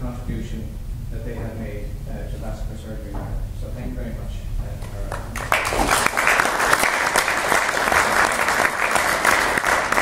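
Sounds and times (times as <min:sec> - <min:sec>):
audience applauding: 0:05.1 - 0:10.0.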